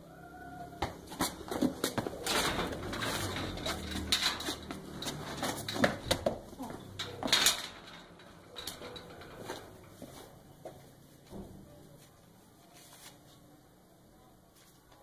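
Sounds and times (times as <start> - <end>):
steel gate clanking: 2.2 - 6.2, 6.8 - 10.0.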